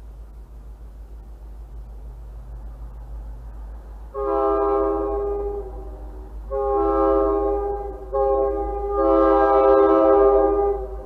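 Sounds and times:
train air horn blasts: 4.1s - 11.0s.

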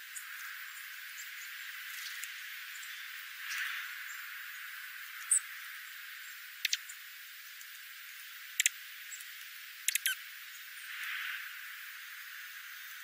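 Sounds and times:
steady hiss: 0.0s - 13.0s
birds pecking at birdseed: 0.2s - 4.0s, 8.5s - 10.2s.

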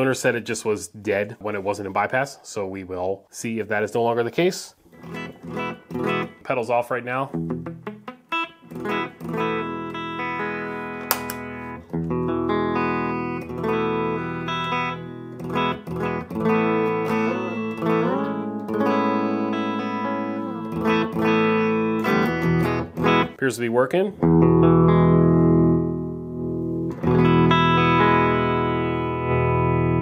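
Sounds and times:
electric guitar through amp: 4.9s - 6.4s, 7.3s - 23.4s, 24.2s - 30.0s
pedal switch click: 11.1s - 11.4s.

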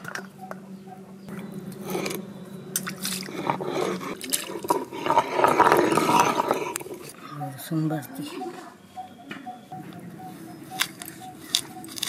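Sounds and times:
hand rubbing stone roller: 1.4s - 7.2s
water splashing over stone: 2.8s - 6.0s.

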